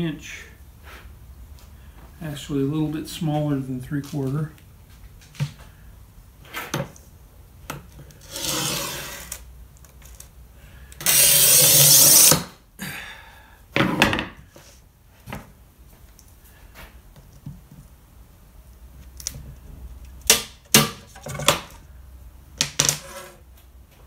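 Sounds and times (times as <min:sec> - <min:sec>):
glass cutter scoring glass: 0:08.2 - 0:09.4, 0:11.0 - 0:12.5.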